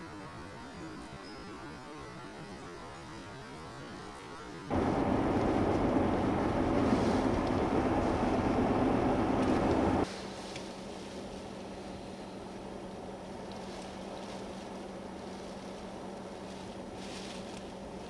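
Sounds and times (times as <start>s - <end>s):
blizzard wind buffeting microphone: 4.7s - 10.1s
faint steady hum: 4.7s - 18.0s.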